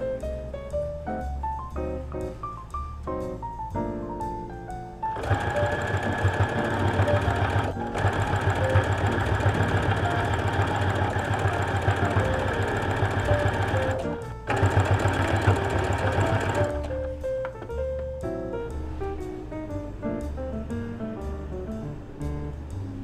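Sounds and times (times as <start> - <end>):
light jazz piano music: 0.0 - 23.0
sewing machine chattering: 5.1 - 16.9.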